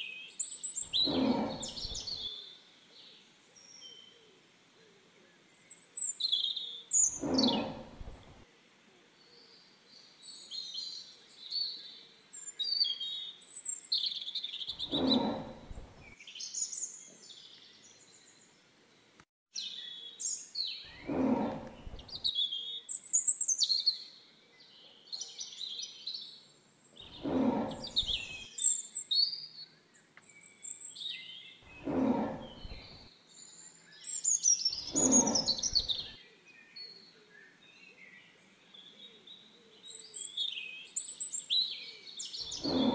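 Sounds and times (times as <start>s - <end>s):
birds chirping and singing: 0.0s - 2.5s, 5.6s - 8.4s, 9.4s - 18.5s, 19.6s - 42.9s
tiger roaring: 0.9s - 2.3s, 7.1s - 8.4s, 14.8s - 16.1s, 20.9s - 22.2s, 27.1s - 28.5s, 31.7s - 33.1s, 34.9s - 36.1s, 42.5s - 42.9s.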